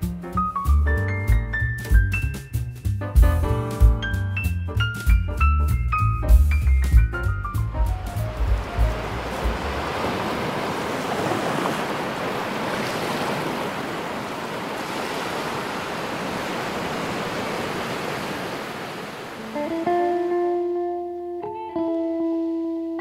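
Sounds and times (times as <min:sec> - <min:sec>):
ocean waves breaking on rocks: 0:08.2 - 0:19.8.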